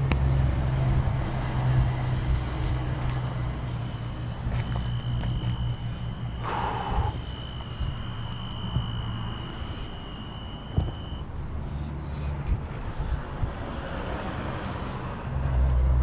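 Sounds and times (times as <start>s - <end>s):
low rumbling footsteps: 0.7s - 13.7s
crickets chirping: 1.3s - 16.0s
steady high-pitched tone: 3.6s - 15.8s.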